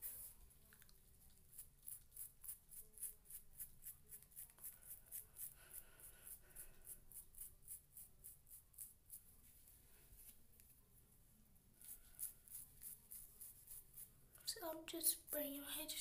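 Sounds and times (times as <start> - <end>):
hair brush strokes: 1.5 - 10.4, 11.8 - 14.1.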